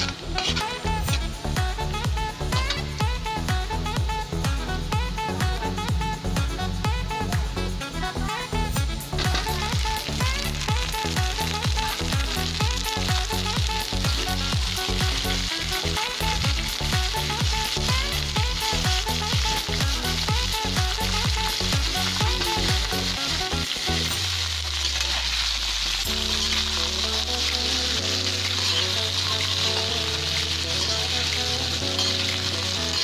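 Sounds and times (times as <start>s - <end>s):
metal spatula stirring: 0.0s - 0.8s, 11.5s - 33.0s
food sizzling in a wok: 0.0s - 7.3s, 8.2s - 33.0s
background music with beat: 0.0s - 33.0s.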